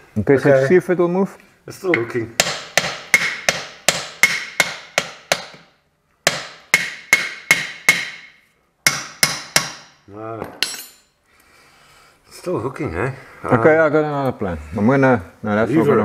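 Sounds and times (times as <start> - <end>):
hammer striking steel bar: 2.0 - 5.7, 6.3 - 10.0.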